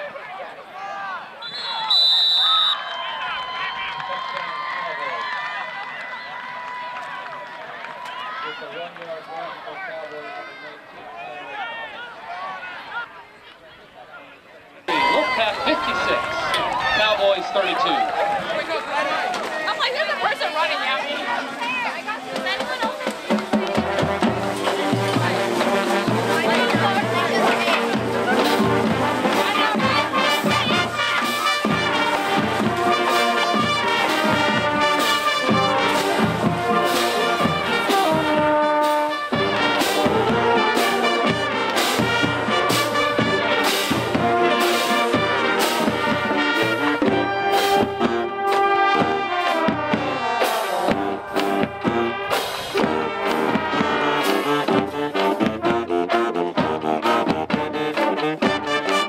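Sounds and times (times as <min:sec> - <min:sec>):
marching band playing: 0:14.9 - 0:59.0
drums keeping a steady beat: 0:19.2 - 0:59.0.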